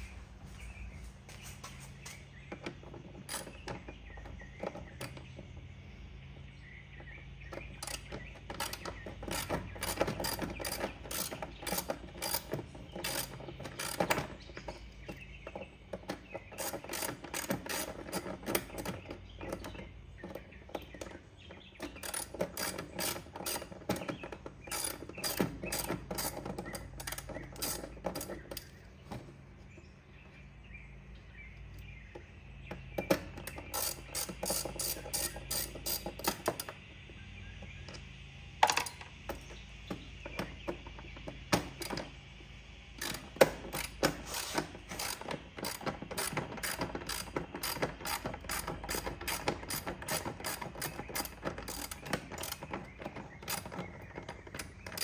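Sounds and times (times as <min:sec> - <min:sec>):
ratchet wrench clicking: 0:07.8 - 0:14.2, 0:24.7 - 0:28.7, 0:33.5 - 0:36.8, 0:43.0 - 0:52.6.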